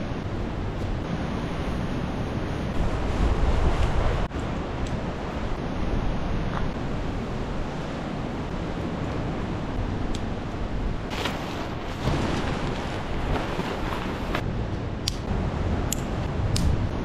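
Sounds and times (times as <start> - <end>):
ocean surf washing: 0.0 - 17.0
wind buffeting microphone: 0.0 - 17.0
sharp clicks: 15.0 - 15.3.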